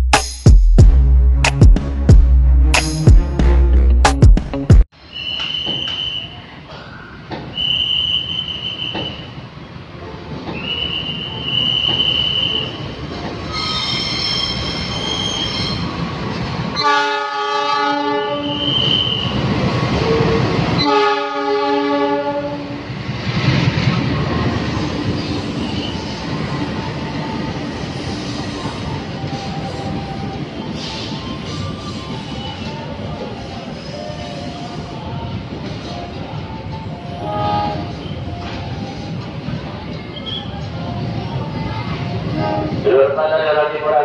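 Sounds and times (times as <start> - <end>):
train horn blasts: 16.8 - 19.2, 20.0 - 22.8, 37.1 - 38.0, 42.3 - 42.8.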